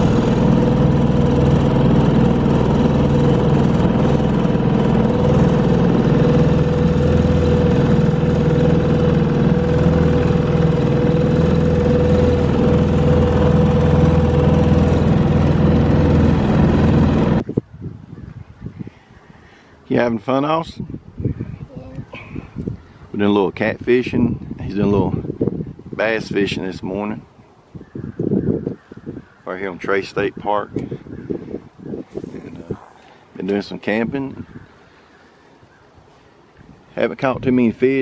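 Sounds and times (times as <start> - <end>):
outboard motor running: 0.0 - 17.4, 30.8 - 38.0
steady motor whine: 0.0 - 17.4.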